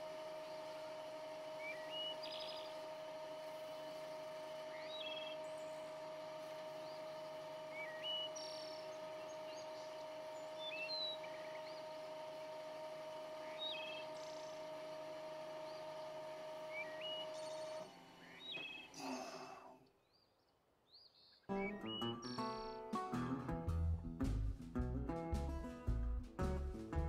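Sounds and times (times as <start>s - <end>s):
wood lathe motor whine: 0.0s - 19.2s
birds chirping: 15.6s - 19.2s, 19.8s - 22.8s.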